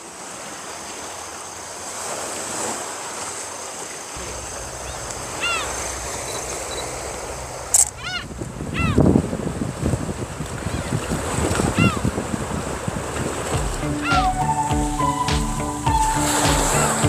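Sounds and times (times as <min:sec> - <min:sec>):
waves washing against rocks: 0:00.0 - 0:14.7
wind rumble on microphone: 0:04.2 - 0:14.6
short high call: 0:13.8 - 0:17.0.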